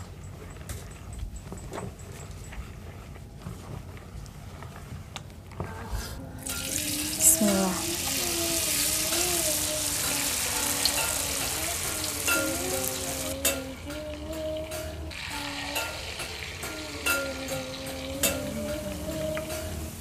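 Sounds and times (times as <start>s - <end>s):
batter sizzling in hot oil: 6.5s - 13.4s, 15.1s - 20.0s.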